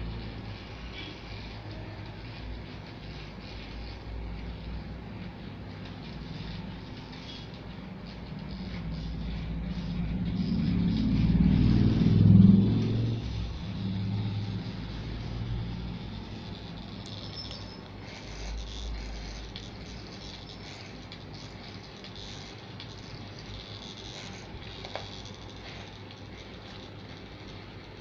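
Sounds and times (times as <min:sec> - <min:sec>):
clipper blades trimming beard: 0:05.7 - 0:27.4.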